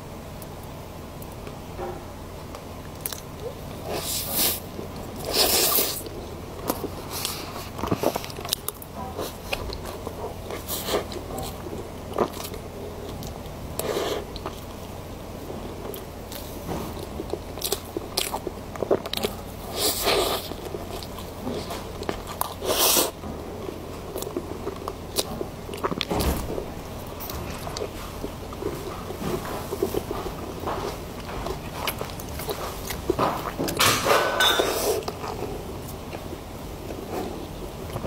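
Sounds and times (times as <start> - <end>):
chewing cake: 2.5 - 38.0.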